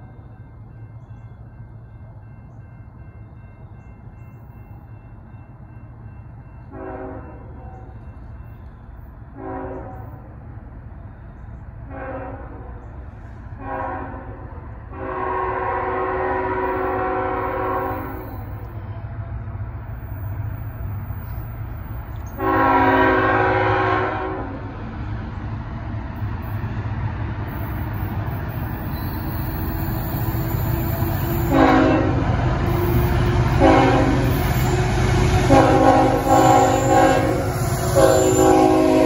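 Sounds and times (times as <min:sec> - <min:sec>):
low train rumble: 0:00.0 - 0:39.0
train air horn blasts: 0:06.7 - 0:08.0, 0:09.3 - 0:10.3, 0:11.8 - 0:18.8, 0:22.3 - 0:24.6, 0:29.0 - 0:39.0.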